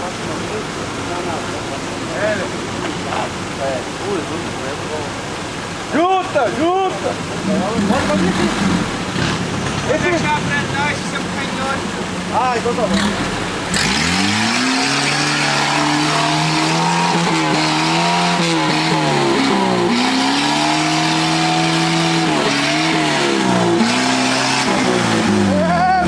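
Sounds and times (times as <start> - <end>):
engine revving under load: 7.3 - 10.8, 12.7 - 25.8.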